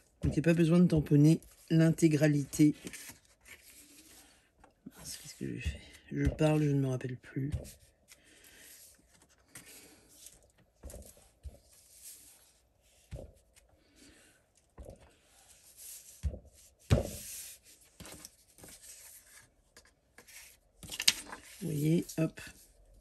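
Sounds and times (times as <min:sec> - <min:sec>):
paper rustling: 0:01.3 - 0:06.8, 0:17.0 - 0:22.7.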